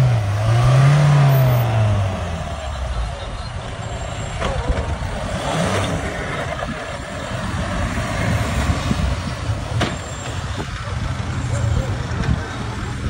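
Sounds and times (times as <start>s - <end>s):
suv engine running: 0.0s - 13.0s.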